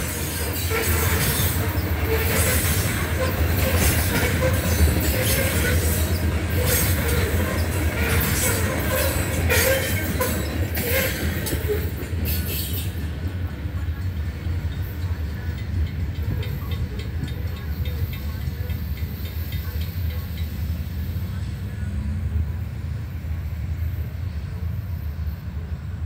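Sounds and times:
crossing warning bell ringing: 14.1 - 20.8.

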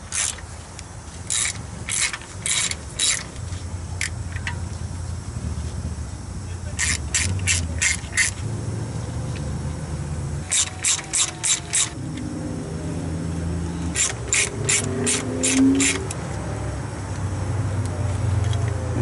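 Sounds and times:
hand ratchet clicking: 0.1 - 0.4, 1.2 - 4.6, 6.8 - 8.4, 10.5 - 12.3, 13.9 - 16.4.

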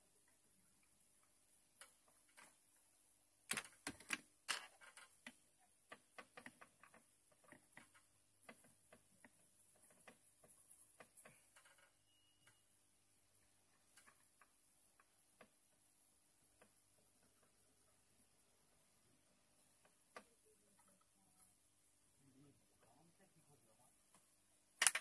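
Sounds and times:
clicks and taps on circuit board: 24.8 - 25.0.

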